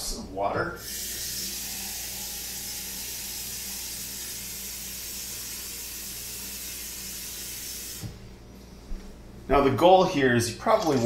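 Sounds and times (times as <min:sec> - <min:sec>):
pot hissing on gas burner: 0:00.8 - 0:08.2.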